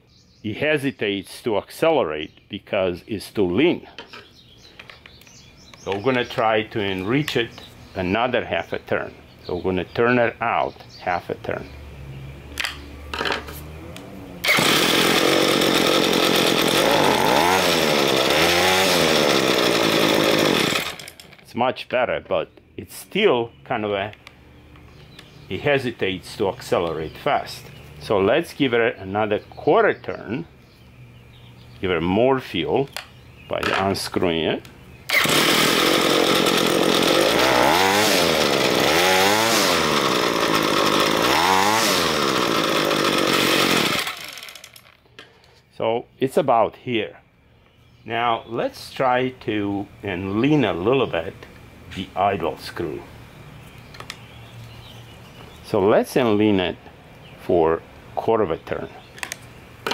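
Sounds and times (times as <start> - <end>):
string trimmer engine revving: 12.0 - 21.4, 35.1 - 45.0.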